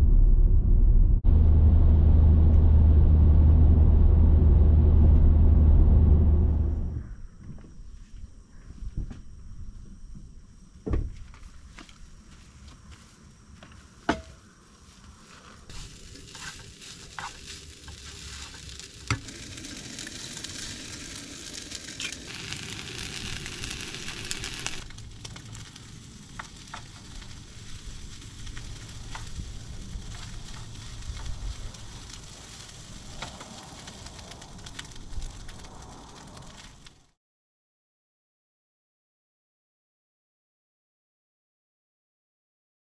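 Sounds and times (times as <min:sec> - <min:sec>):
food sizzling in metal pan: 0:15.7 - 0:33.2.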